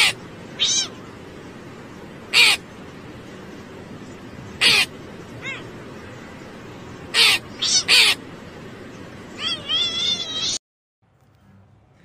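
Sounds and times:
steady hiss: 0.0s - 9.4s
crow cawing: 2.3s - 2.6s, 4.6s - 5.6s.

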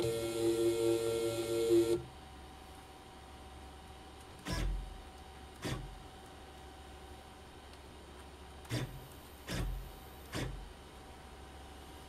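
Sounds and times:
lathe motor whine: 0.0s - 2.0s.

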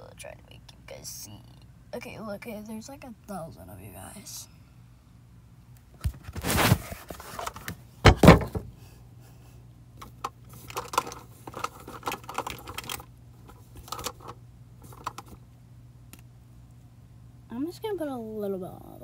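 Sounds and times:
small clicks and rustles: 10.0s - 15.4s.

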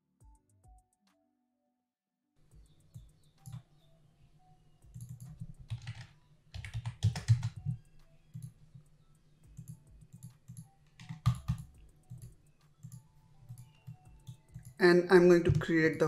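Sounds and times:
keyboard typing: 2.8s - 3.7s, 4.8s - 16.0s.

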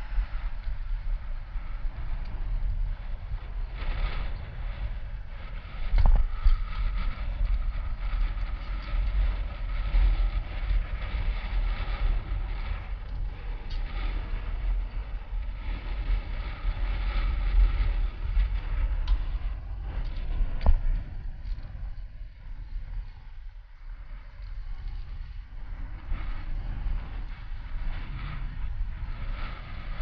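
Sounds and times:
bicycle tyre rumble on asphalt: 0.0s - 30.0s
wind buffeting microphone: 0.0s - 30.0s.

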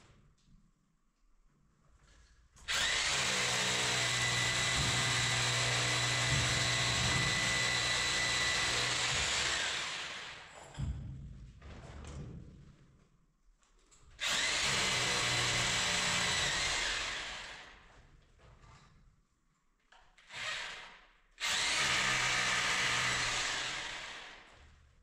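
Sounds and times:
electric hand drill running: 2.7s - 10.5s, 14.2s - 17.7s, 20.3s - 24.5s.

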